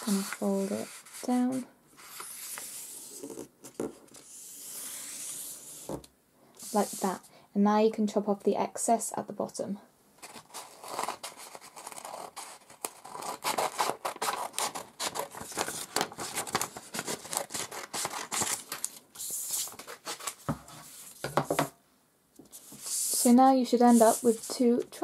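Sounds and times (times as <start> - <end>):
scissors cutting paper: 10.2 - 18.7
paper rustling: 10.2 - 21.6, 22.5 - 25.0.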